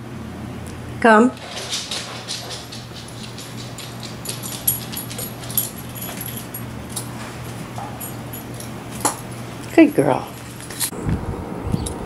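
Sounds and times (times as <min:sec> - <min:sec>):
steady low hum: 0:00.0 - 0:12.0
dog footsteps on wooden floor: 0:01.4 - 0:10.9.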